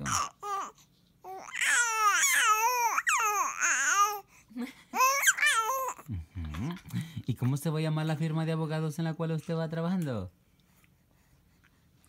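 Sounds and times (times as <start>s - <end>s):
baby cooing and babbling: 0.0s - 4.3s, 5.0s - 6.1s.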